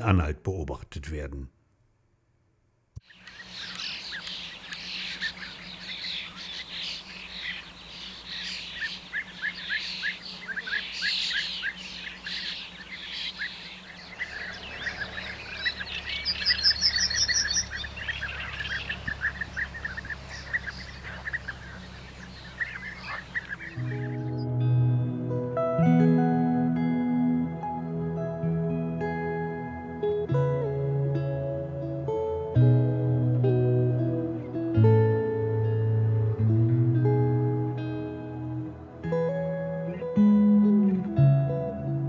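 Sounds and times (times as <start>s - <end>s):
birds calling: 3.0s - 24.4s.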